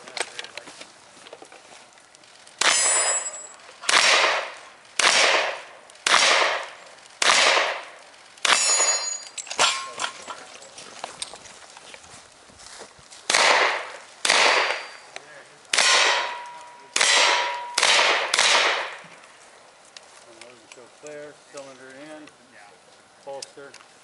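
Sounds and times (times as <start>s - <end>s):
ringing tone: 8.6s - 9.9s
revolver shots with echo: 15.7s - 19.0s.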